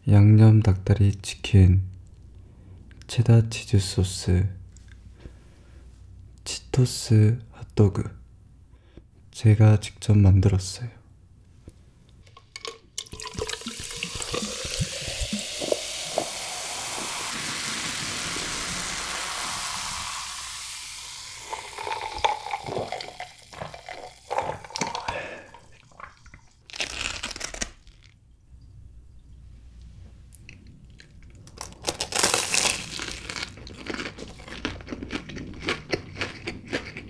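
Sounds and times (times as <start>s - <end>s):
soda fizzing: 12.5s - 26.7s
soda pouring into glass: 12.6s - 26.4s
ice crackling: 14.1s - 25.4s.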